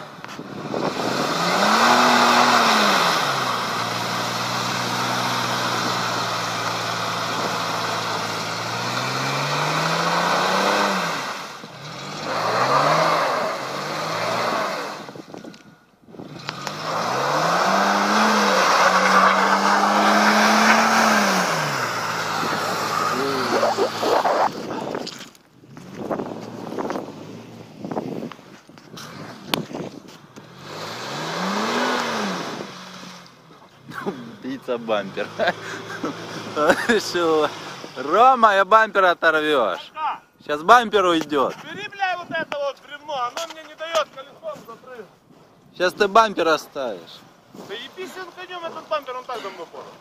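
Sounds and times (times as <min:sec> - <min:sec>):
car engine revving hard: 0:00.5 - 0:15.2, 0:16.2 - 0:24.8, 0:30.4 - 0:38.2
tyres churning mud and water: 0:16.7 - 0:25.0.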